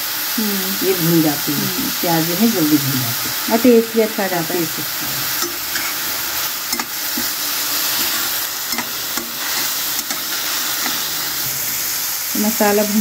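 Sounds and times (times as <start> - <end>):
onions sizzling in hot oil: 0.0 - 13.0
spatula scraping metal pan: 5.0 - 12.1.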